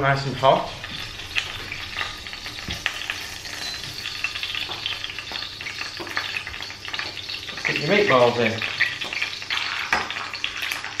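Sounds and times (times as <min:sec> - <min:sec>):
oil sizzling in a frying pan: 0:00.0 - 0:11.0.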